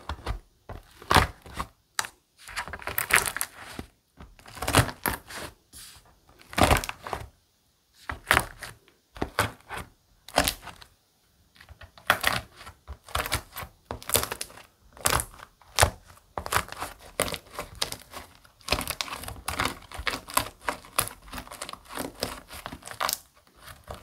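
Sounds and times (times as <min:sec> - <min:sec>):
slime crust crackling: 0:12.0 - 0:24.0.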